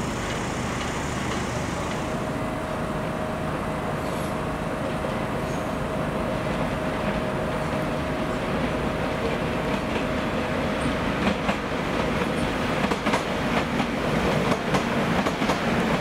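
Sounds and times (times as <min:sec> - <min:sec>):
train mechanical noise: 0:00.0 - 0:16.0
train whine: 0:00.0 - 0:16.0.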